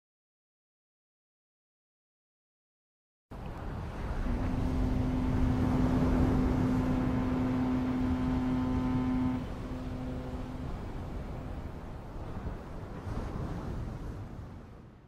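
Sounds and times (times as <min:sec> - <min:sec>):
low hum: 0:03.3 - 0:13.8
wind on microphone: 0:03.3 - 0:15.0.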